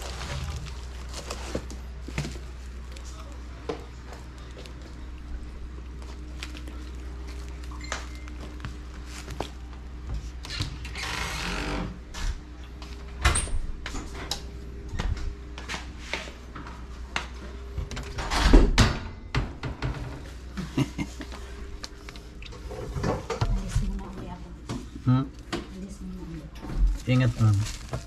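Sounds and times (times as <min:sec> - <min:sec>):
plastic-wrapped cartridges rustling: 0:00.0 - 0:03.1, 0:26.9 - 0:28.0
steady low hum: 0:00.0 - 0:28.0.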